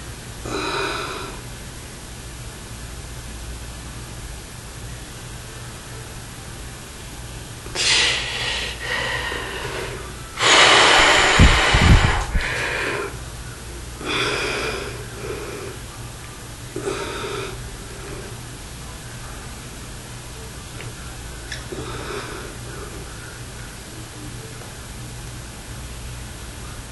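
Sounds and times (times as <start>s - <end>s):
man breathing hard: 7.8s - 13.2s, 14.0s - 15.9s, 16.8s - 18.4s, 21.7s - 23.2s.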